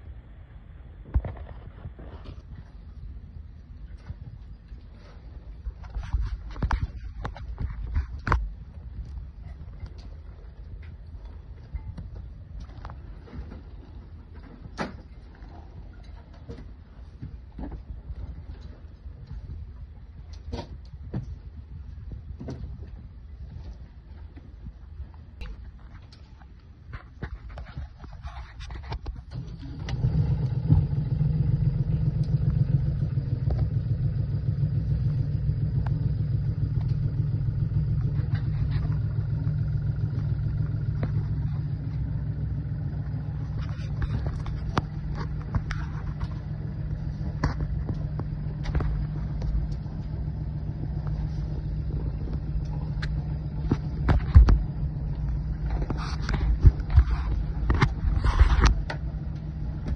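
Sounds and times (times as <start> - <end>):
diesel engine running: 29.3 - 59.9.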